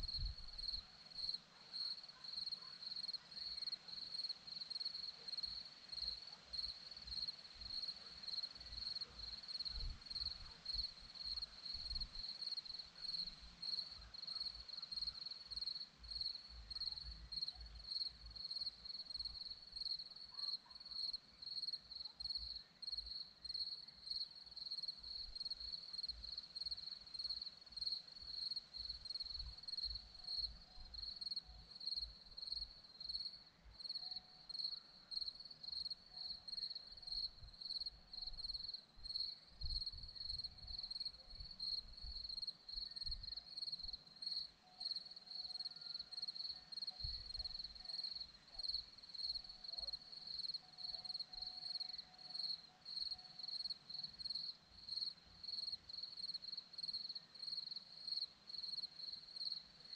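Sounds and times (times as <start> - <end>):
crickets chirping: 0.0 - 59.9.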